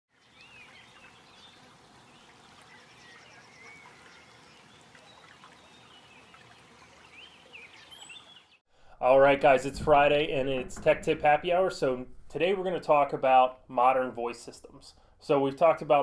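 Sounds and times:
low background hiss: 9.0s - 16.0s.

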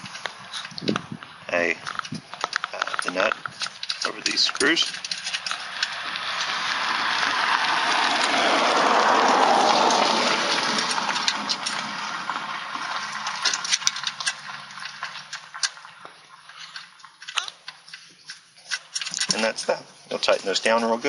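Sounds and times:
vehicle passing: 4.1s - 15.4s.

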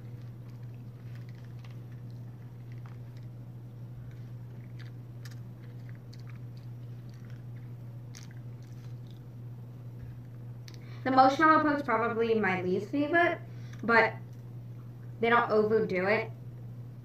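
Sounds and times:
person chewing crunchy cookie: 0.0s - 11.0s
steady low hum: 0.0s - 17.0s.

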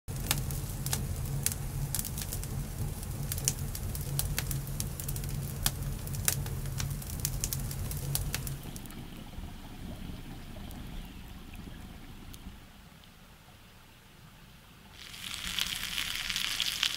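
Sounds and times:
campfire crackling and popping: 0.1s - 8.9s, 15.0s - 16.9s
low rumble of flames: 0.1s - 12.8s.

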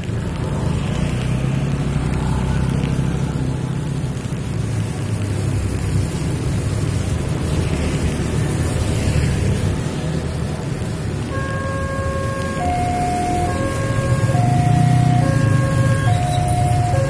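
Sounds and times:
motor scooters passing: 0.0s - 17.0s
tyres hissing on wet asphalt: 0.0s - 17.0s.

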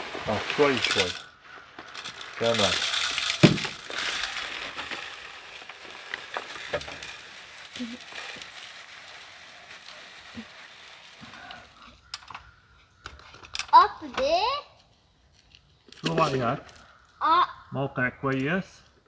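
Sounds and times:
birdseed pouring: 0.0s - 12.1s.

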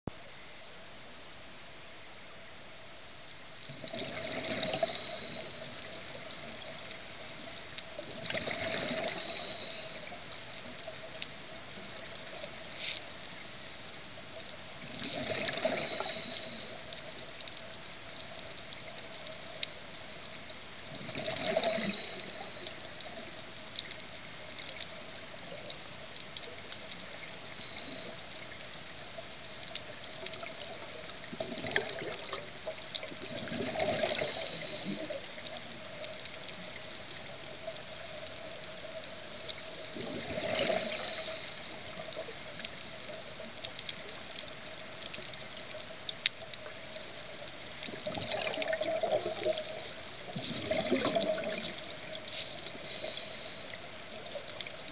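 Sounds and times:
faint steady hum: 0.1s - 54.9s
exhaled bubbles underwater: 3.7s - 12.6s, 14.8s - 17.4s, 20.8s - 25.8s, 29.8s - 45.9s, 46.5s - 54.9s
small clicks: 40.8s - 48.7s.

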